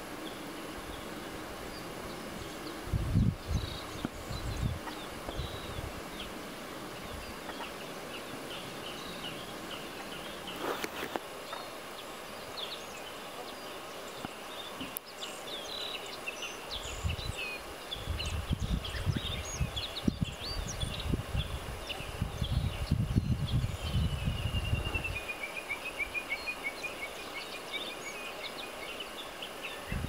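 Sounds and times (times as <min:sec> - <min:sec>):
birds chirping and whistling: 0:01.7 - 0:11.8, 0:14.2 - 0:30.0
wind rumble on microphone: 0:01.8 - 0:07.4, 0:16.7 - 0:25.3, 0:29.8 - 0:30.0.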